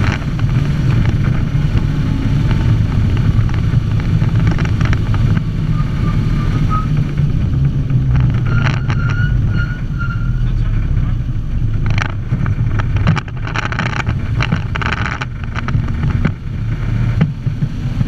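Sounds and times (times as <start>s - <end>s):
truck engine running: 0.0s - 18.0s
short knocks and rattles: 11.7s - 17.8s.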